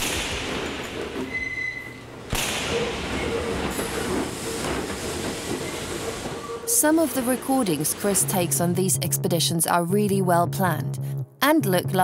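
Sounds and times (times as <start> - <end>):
subway train running in tunnel: 0.0 - 9.8
high wheel squeal: 1.2 - 2.1, 2.7 - 6.8.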